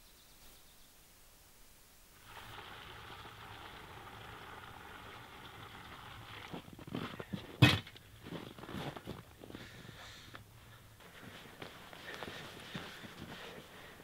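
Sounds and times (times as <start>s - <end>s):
water pouring into plastic basin: 2.2s - 6.9s.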